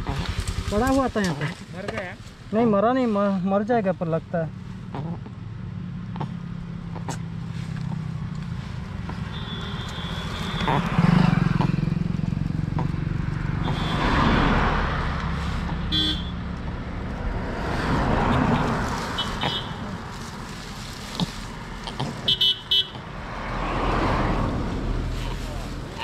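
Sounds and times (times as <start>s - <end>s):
road traffic passing: 0.0s - 26.0s
car horn toots: 9.3s - 11.1s, 13.6s - 14.5s, 15.7s - 16.4s, 19.2s - 19.8s, 22.3s - 23.0s.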